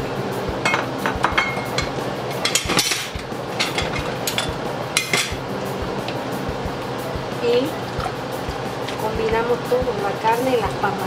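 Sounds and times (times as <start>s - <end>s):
utensil clinking against pot: 0.6s - 5.4s.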